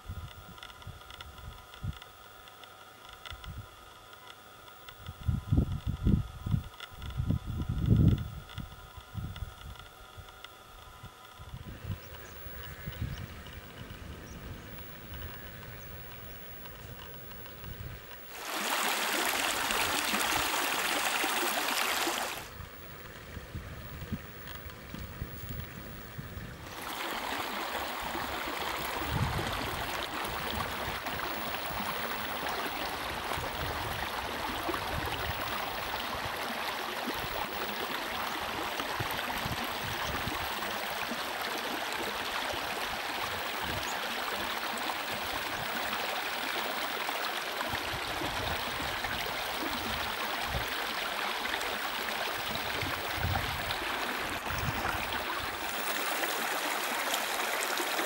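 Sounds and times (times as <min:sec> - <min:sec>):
wind buffeting microphone: 0:05.1 - 0:09.8, 0:11.0 - 0:18.1, 0:22.6 - 0:26.7, 0:28.0 - 0:31.3, 0:52.5 - 0:55.6
stream running over stones: 0:18.2 - 0:23.4, 0:26.6 - 0:58.0.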